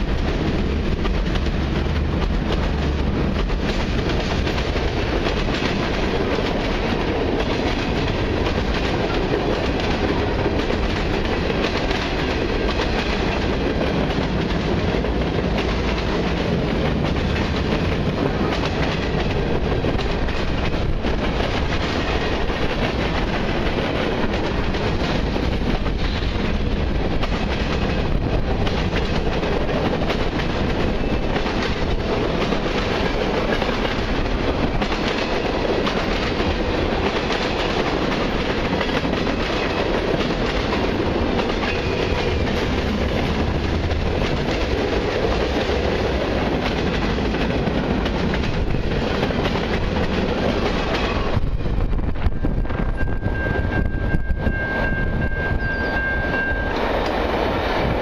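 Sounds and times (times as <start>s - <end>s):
train wheels clacking over rail joints: 0.0s - 51.6s
steady high tone: 52.2s - 58.0s.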